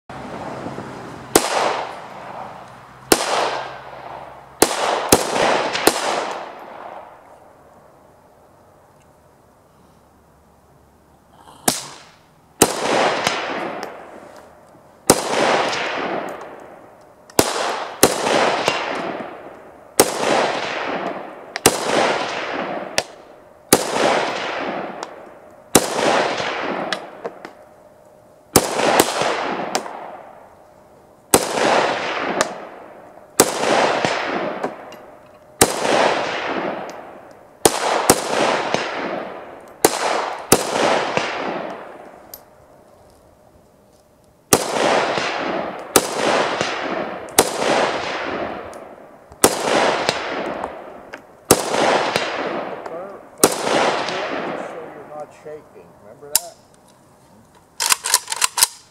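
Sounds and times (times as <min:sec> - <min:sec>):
rifle shots with echo: 0:01.3 - 0:02.5, 0:03.1 - 0:07.2, 0:11.6 - 0:14.2, 0:15.0 - 0:27.6, 0:28.5 - 0:30.4, 0:31.3 - 0:42.2, 0:44.5 - 0:55.6, 0:56.2 - 0:56.6, 0:57.8 - 0:58.9.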